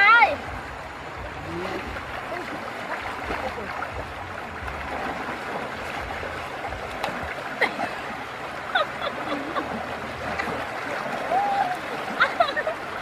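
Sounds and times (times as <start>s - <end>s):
river flowing over rocks: 0.0s - 13.0s.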